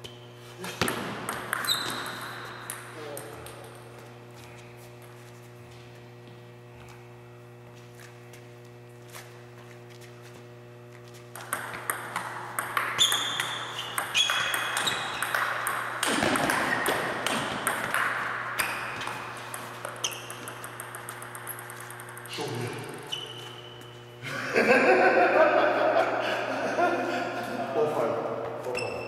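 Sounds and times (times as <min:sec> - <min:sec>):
ping-pong ball ticking on paddles: 0:11.4 - 0:23.1.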